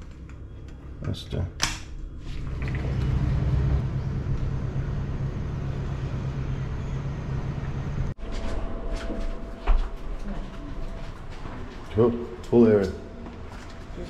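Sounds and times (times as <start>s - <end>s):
distant traffic: 2.5s - 8.2s.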